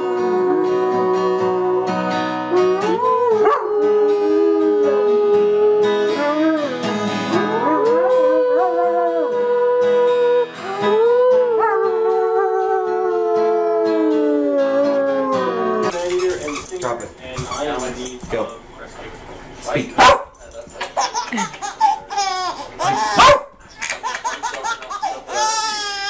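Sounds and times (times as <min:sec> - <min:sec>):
strummed acoustic guitar: 0:00.0 - 0:12.1
dog howling: 0:00.0 - 0:15.9.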